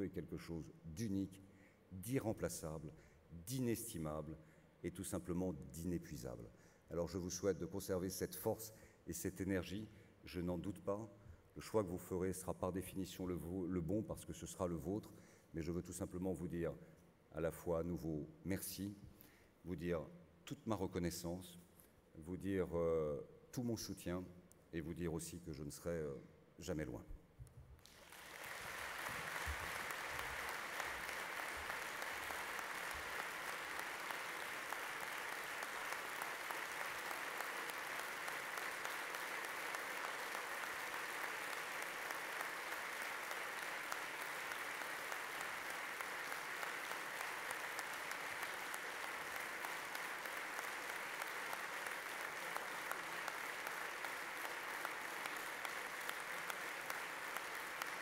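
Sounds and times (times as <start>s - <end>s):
large audience applauding: 27.8s - 58.0s.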